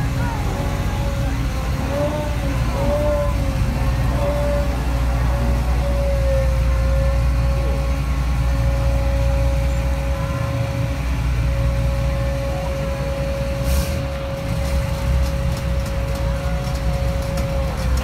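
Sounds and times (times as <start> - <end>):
heavy diesel engine running: 0.0 - 18.0
steady high whine: 0.0 - 18.0
short hiss: 13.6 - 14.1.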